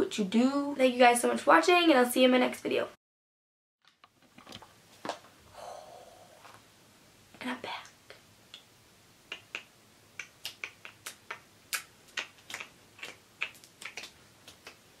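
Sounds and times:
fingers snapping: 0:09.3 - 0:14.8.

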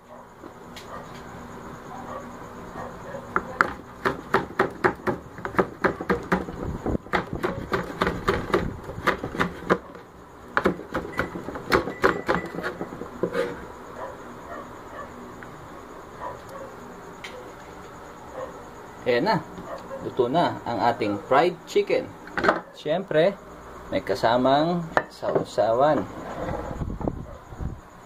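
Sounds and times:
knife chopping on cutting board: 0:07.1 - 0:09.8, 0:10.6 - 0:13.5.

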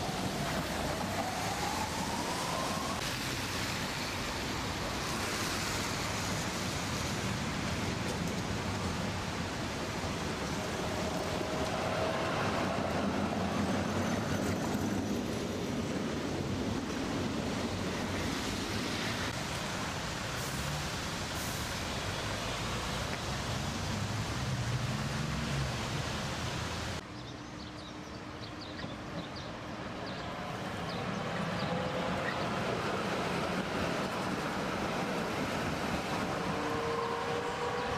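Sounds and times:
tram wheels rolling on rails: 0:05.2 - 0:20.0, 0:28.7 - 0:37.9.

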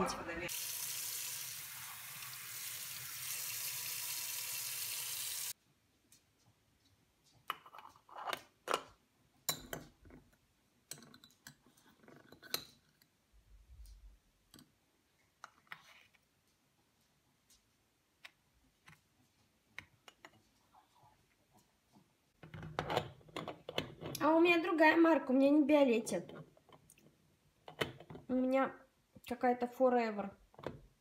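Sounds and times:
tap water running into metal pot: 0:00.5 - 0:05.5.

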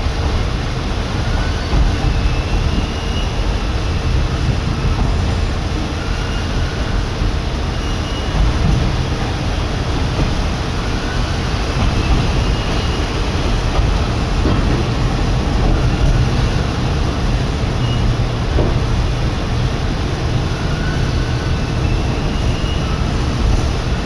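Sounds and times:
train cabin rumble: 0:00.0 - 0:24.0.

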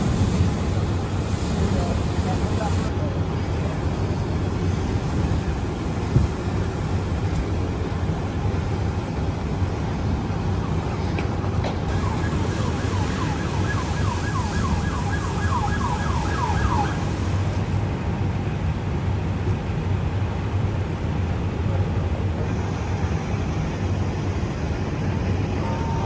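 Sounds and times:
siren yelping: 0:11.9 - 0:17.3.

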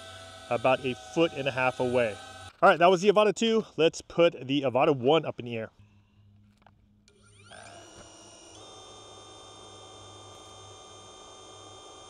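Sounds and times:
drone motors whining: 0:00.0 - 0:02.8, 0:07.1 - 0:12.0.

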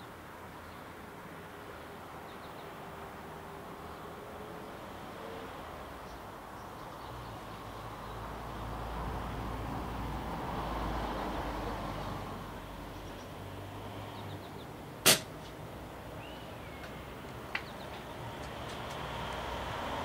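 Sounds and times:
air rifle shot: 0:15.0 - 0:15.4.

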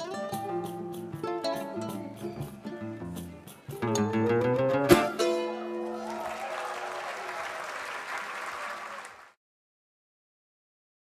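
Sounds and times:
plucked guitar run: 0:00.0 - 0:06.0.

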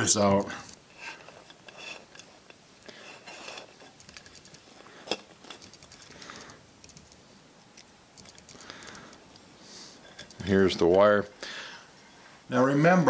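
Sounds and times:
small clicks: 0:05.5 - 0:09.4.

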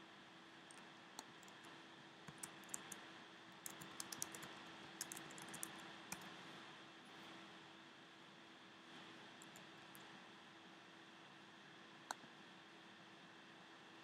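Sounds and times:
typing on keyboard: 0:02.3 - 0:03.0, 0:03.6 - 0:06.3.

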